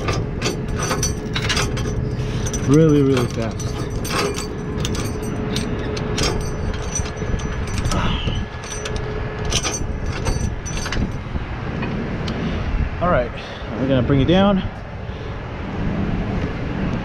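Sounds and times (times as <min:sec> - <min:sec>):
metal clinks and clanks: 0:00.0 - 0:11.4
tow truck engine running: 0:00.0 - 0:13.9.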